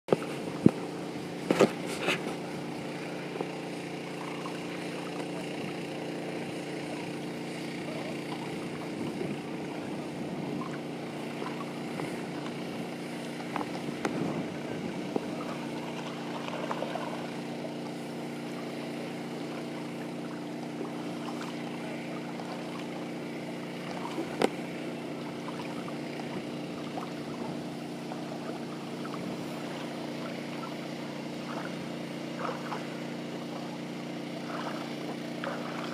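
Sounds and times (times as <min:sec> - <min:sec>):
motor humming: 0:00.1 - 0:35.9
dog splashing in water: 0:15.3 - 0:24.6, 0:34.1 - 0:35.9.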